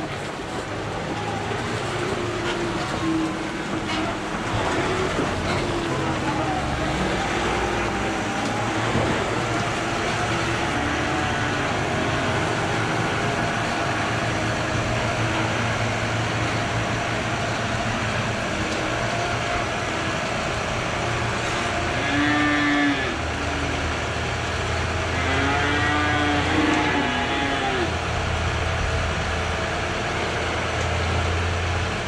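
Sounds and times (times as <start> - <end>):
tractor engine running: 0.0 - 21.9
cows mooing: 6.8 - 14.6, 21.4 - 23.7, 25.0 - 28.0.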